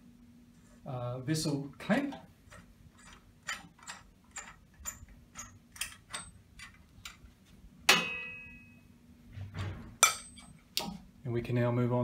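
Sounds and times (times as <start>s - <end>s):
sharp metallic clang: 7.9s - 8.8s, 10.0s - 10.5s.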